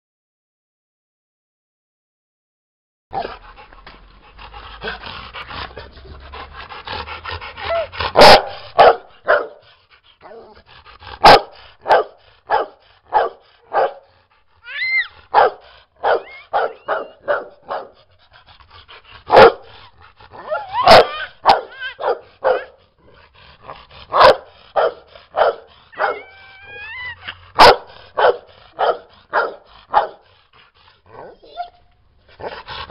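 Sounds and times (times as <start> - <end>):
dog whining: 7.6 - 8.9, 14.5 - 17.4, 20.3 - 22.8, 25.9 - 28.1, 31.1 - 32.0
dog barking: 8.1 - 9.7, 11.2 - 14.1, 15.3 - 18.0, 19.3 - 19.7, 20.4 - 22.8, 24.1 - 26.4, 27.6 - 30.2.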